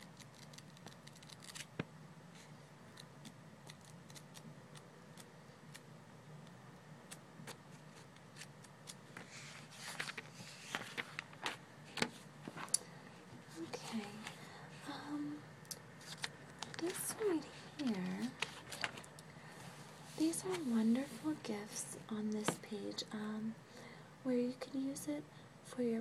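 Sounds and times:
paper pages flipping: 0.0 - 1.9, 7.1 - 12.8, 16.0 - 19.1
faint low hum: 0.0 - 26.0
pages rustling as turned: 0.2 - 1.9, 7.4 - 12.8, 16.0 - 19.1.

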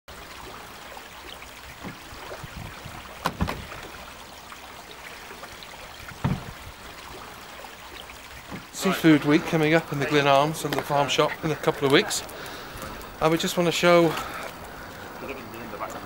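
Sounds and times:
shoreline water: 0.1 - 16.0.

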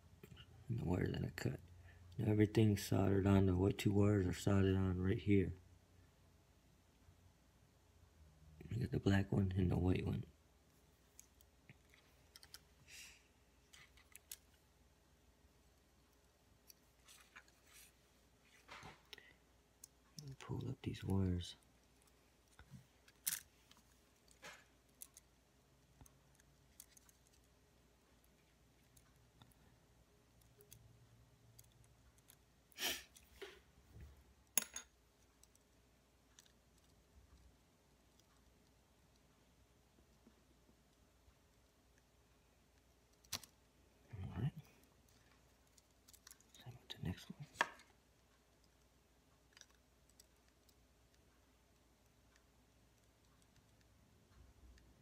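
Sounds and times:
plastic parts clicking: 43.1 - 43.6.

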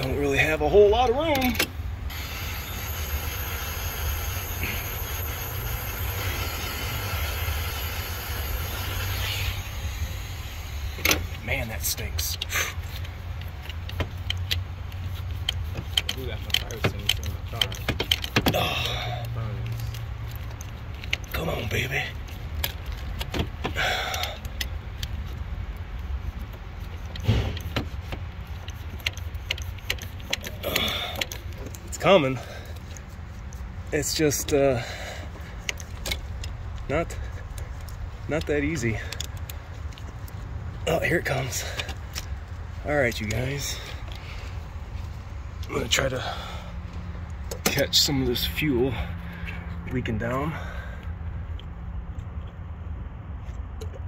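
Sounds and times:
steady low hum: 1.7 - 54.0
heat gun blowing air: 2.1 - 11.4
pliers clicking and scraping on metal: 12.2 - 23.3
small clicks and knocks: 12.9 - 18.6.

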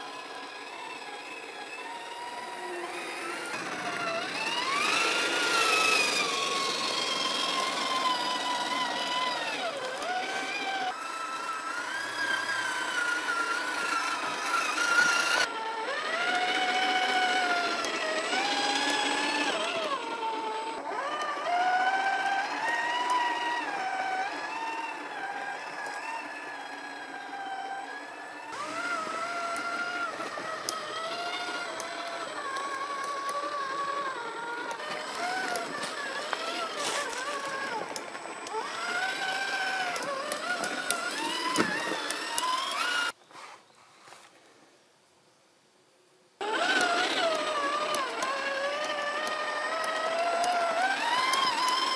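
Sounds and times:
electric motor and gearbox whining: 0.0 - 44.3, 46.4 - 51.9.

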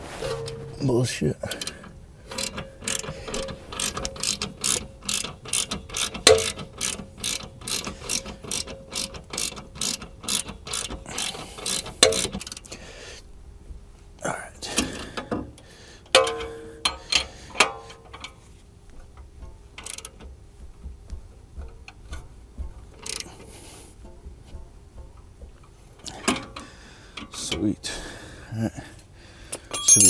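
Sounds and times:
ratchet wrench clicking: 2.3 - 12.6, 19.8 - 20.1, 23.0 - 23.3.

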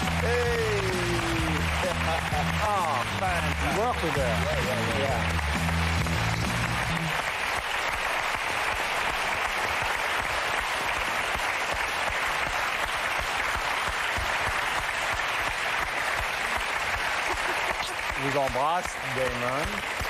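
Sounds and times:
audience applause: 0.0 - 20.0.

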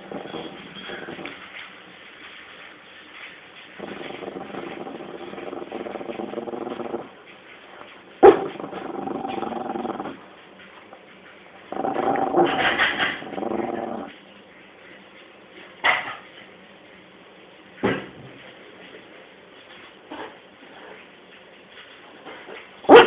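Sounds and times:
dog growling: 0.0 - 1.6, 3.7 - 10.3, 11.6 - 14.2.

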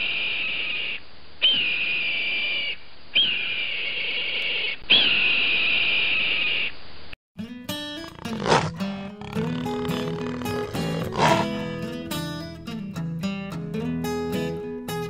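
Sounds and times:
music: 7.4 - 15.0
hawk screeching: 8.0 - 11.8.

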